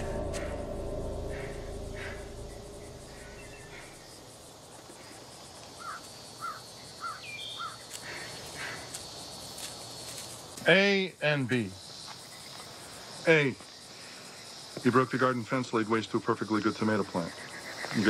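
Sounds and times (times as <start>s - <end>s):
bird chirping: 0.0s - 4.1s
low music drone: 0.0s - 4.2s
insect chirring: 0.0s - 18.0s.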